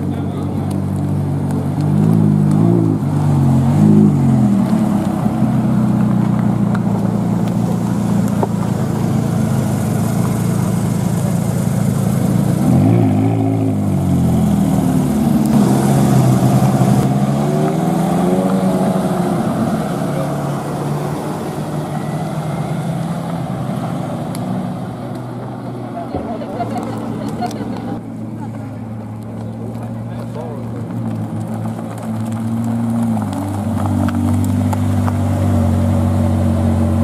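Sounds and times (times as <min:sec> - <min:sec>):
car engine at low revs: 0:00.0 - 0:37.0.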